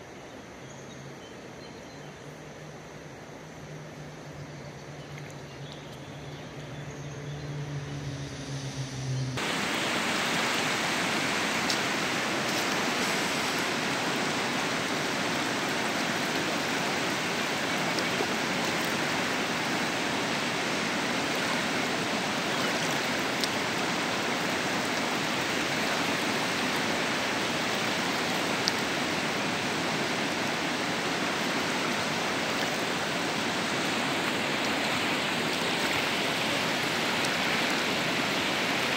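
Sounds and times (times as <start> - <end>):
river rushing over stones: 9.4 - 38.9.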